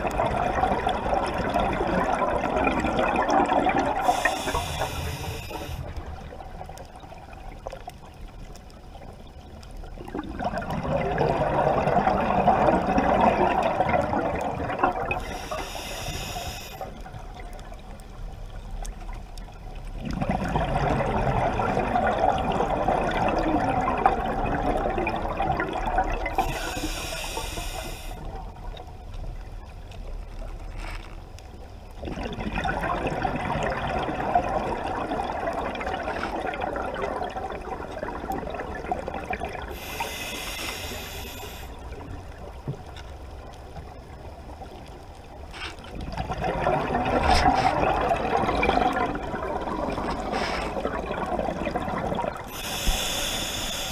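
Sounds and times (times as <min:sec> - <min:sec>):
gurgling exhaled bubbles: 0:00.0 - 0:07.8, 0:09.8 - 0:17.5, 0:20.0 - 0:28.6, 0:32.0 - 0:42.6, 0:45.8 - 0:53.9
regulator inhale hiss: 0:04.0 - 0:06.0, 0:15.2 - 0:17.0, 0:26.3 - 0:28.3, 0:39.7 - 0:41.8, 0:52.5 - 0:53.9.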